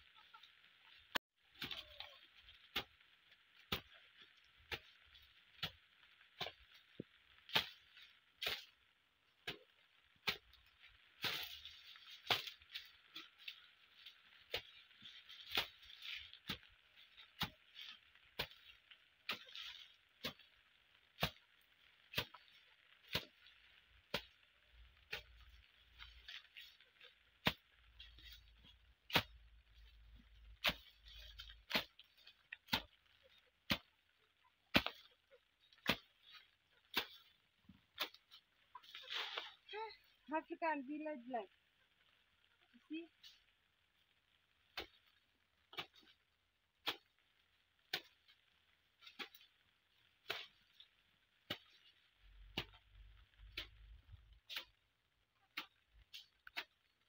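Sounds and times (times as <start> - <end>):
hand hoe chopping soil: 1.5 - 3.0, 3.6 - 8.8, 9.4 - 20.6, 21.2 - 24.4, 25.0 - 34.0, 34.6 - 39.6, 44.7 - 46.2, 46.8 - 47.2, 47.9 - 48.4, 49.0 - 54.8, 55.4 - 57.0.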